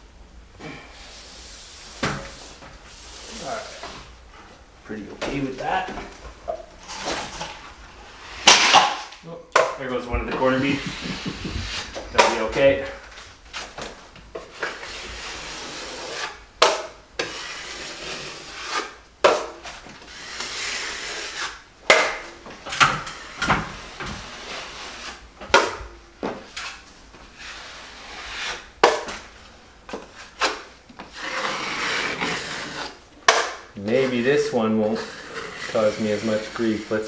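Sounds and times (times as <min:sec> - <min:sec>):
taping knife scraping compound: 0:10.4 - 0:12.8, 0:14.4 - 0:22.2, 0:23.0 - 0:25.8, 0:27.4 - 0:29.2, 0:29.9 - 0:37.0.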